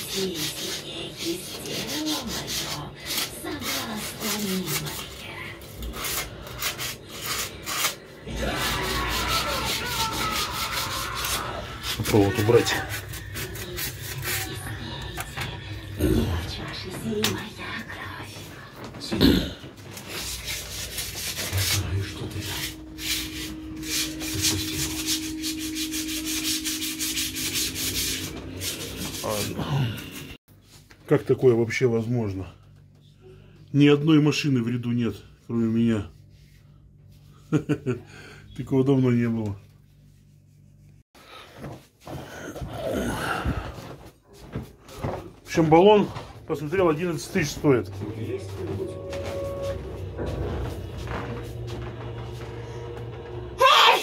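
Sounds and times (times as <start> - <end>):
pad rasping on tiles: 0.0 - 5.0
rubbing strokes on a hard surface: 0.0 - 5.0, 5.7 - 14.7, 20.0 - 29.6
steady low hum: 11.6 - 53.6.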